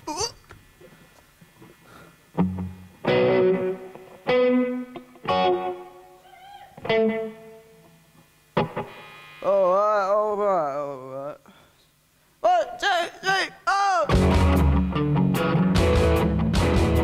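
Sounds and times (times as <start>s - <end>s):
distorted electric guitar chords: 2.4s - 6.1s, 6.8s - 9.9s, 14.1s - 17.0s.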